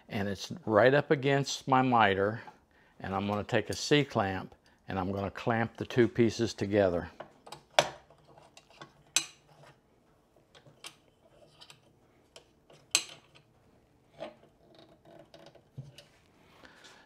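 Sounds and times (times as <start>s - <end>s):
metal clamp clicking and clinking: 10.5s - 13.5s.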